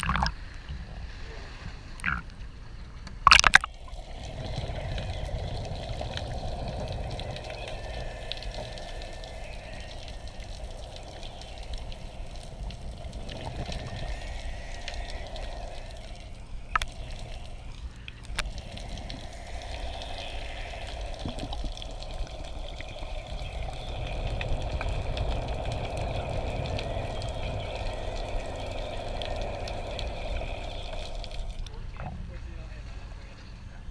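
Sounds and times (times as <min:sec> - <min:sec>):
low rumble of water: 0:00.0 - 0:33.9
sharp clicks: 0:03.3 - 0:03.7
exhaled bubbles underwater: 0:03.3 - 0:32.2.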